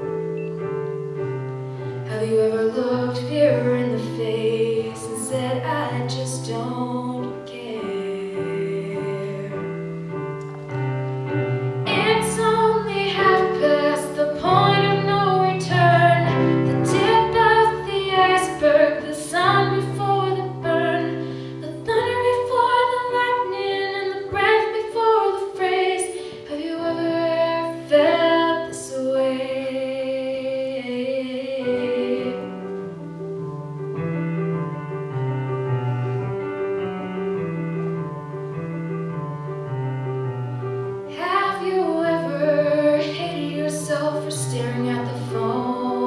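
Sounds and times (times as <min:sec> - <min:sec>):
instrumental accompaniment: 0:00.0 - 0:46.0
woman singing: 0:02.1 - 0:09.9, 0:11.9 - 0:32.8, 0:41.1 - 0:46.0.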